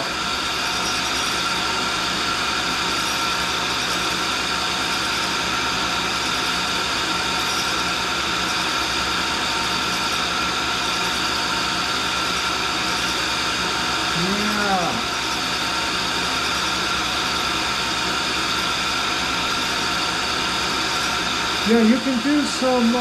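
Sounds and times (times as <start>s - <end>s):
grinding wheel whirring: 12.8s - 23.0s.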